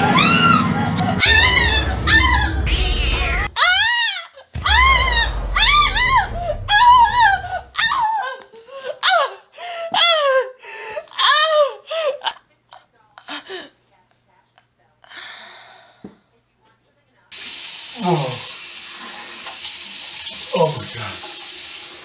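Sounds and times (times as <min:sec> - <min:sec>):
low rumbling: 0:00.0 - 0:03.6, 0:04.6 - 0:08.1
cat yowling and meowing: 0:00.1 - 0:02.6.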